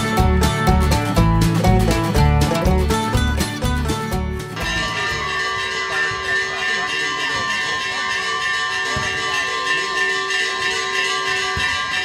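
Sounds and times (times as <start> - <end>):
church bells ringing: 4.6 - 12.0.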